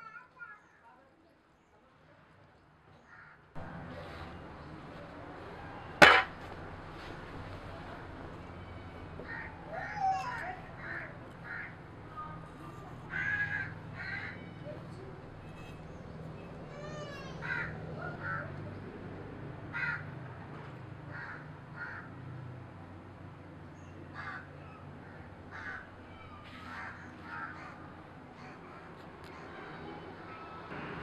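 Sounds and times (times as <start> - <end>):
birds calling harshly: 13.0 - 18.4, 23.8 - 29.6.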